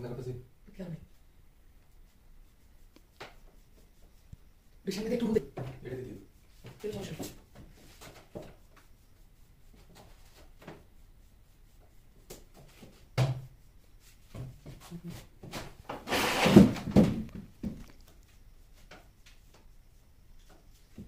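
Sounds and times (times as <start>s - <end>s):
brush scrubbing: 1.8s - 15.4s
thunk: 13.2s - 13.4s.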